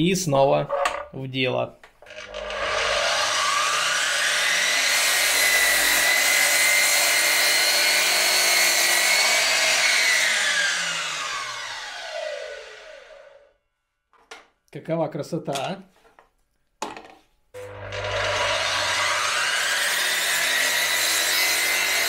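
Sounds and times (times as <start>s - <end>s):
miter saw motor whining: 2.1s - 13.4s, 17.6s - 22.0s
saw cutting through wood board: 2.1s - 13.4s, 17.6s - 22.0s.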